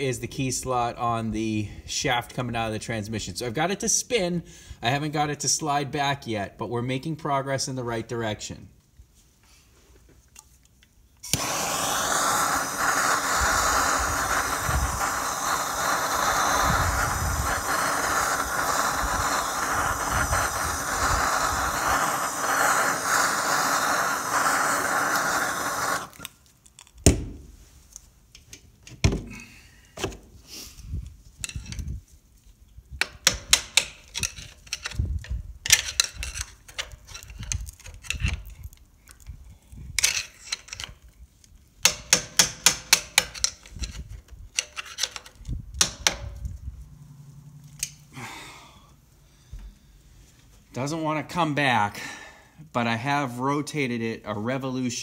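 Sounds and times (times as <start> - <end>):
gas torch hissing: 11.2 - 26.4.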